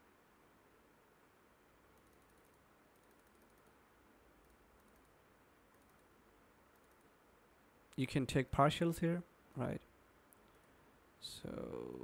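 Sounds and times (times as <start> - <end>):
faint rapid computer clicking: 1.7 - 8.4, 9.8 - 10.9.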